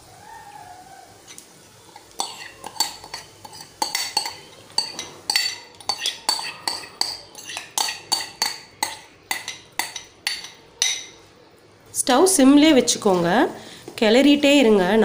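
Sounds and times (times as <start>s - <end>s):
spoon clinking against metal bowl: 1.9s - 11.2s.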